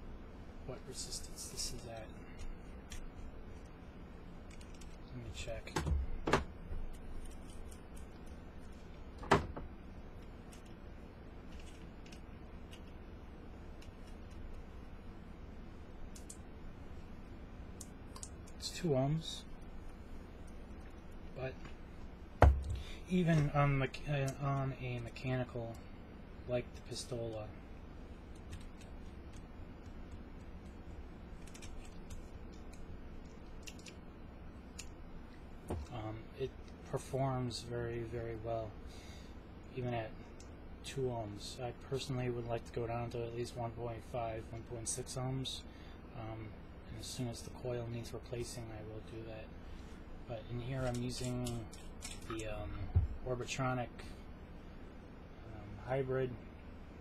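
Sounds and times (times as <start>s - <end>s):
low steady hum: 0.0s - 57.0s.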